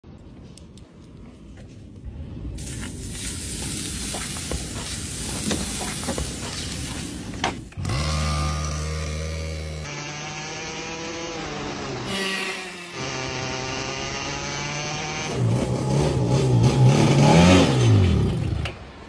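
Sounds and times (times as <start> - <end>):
steak sizzling with pops: 2.6 - 7.4.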